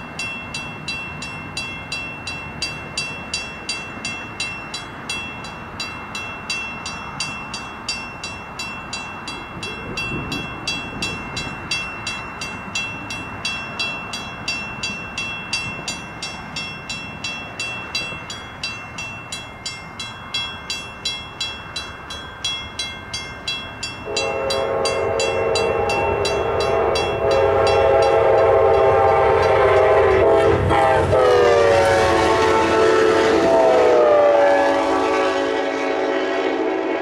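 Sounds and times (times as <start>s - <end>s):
crossing bells ringing: 0.0s - 36.0s
train rumble: 0.0s - 37.0s
locomotive air horn: 24.0s - 37.0s.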